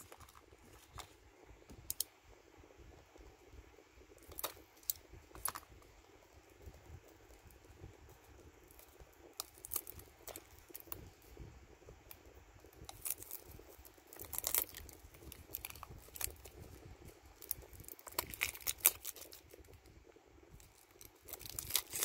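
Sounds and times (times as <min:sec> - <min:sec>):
fingernails crinkling plastic wrap: 0:08.7 - 0:11.1, 0:12.8 - 0:19.9, 0:20.6 - 0:22.0.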